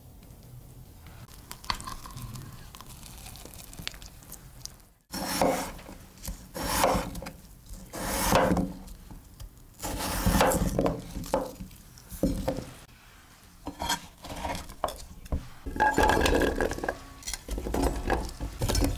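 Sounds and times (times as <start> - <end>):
knife slicing potatoes on wood: 5.1 - 8.9, 9.8 - 11.7.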